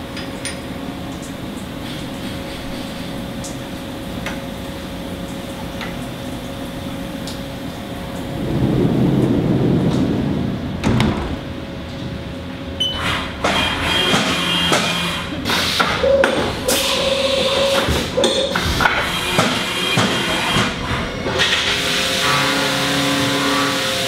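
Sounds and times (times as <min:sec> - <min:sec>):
machine rumble: 0:00.0 - 0:23.6
milling machine hum: 0:00.0 - 0:24.0
enclosure doors banging shut: 0:10.8 - 0:11.5.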